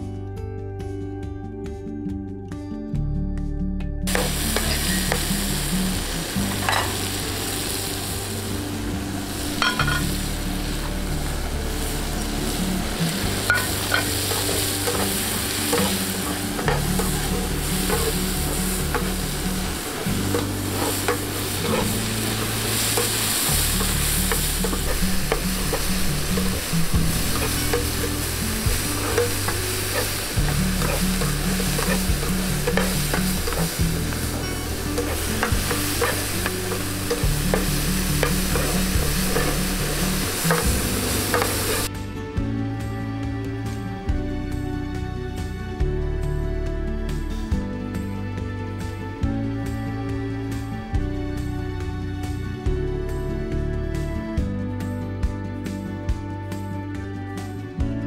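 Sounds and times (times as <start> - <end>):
vegetables sizzling in oil: 4.1 - 41.9
metal turner scraping pan: 9.6 - 10.2, 12.2 - 41.9.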